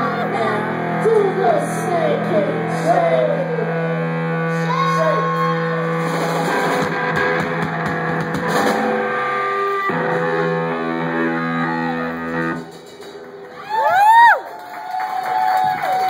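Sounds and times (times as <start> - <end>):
electric guitar chords: 0.0 - 13.6
drum hits: 6.0 - 9.2.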